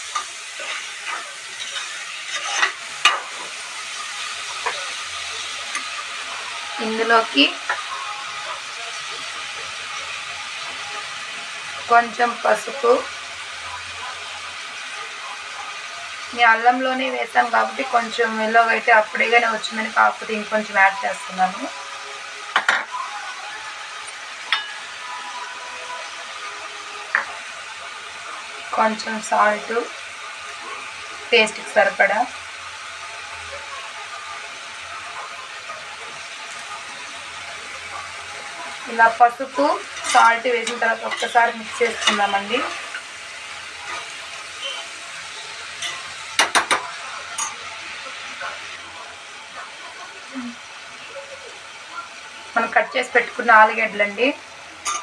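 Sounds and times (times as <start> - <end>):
frying sizzle: 0.0 - 55.0
spoon scraping metal pot: 0.1 - 3.5, 39.9 - 43.0.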